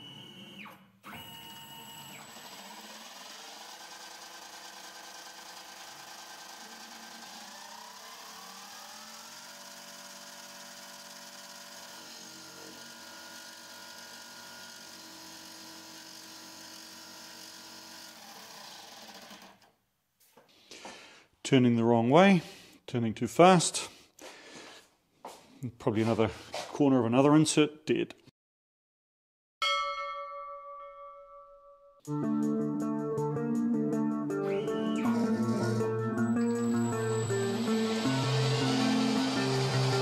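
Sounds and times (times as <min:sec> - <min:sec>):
lathe motor whine: 0:00.0 - 0:19.5, 0:34.5 - 0:40.0.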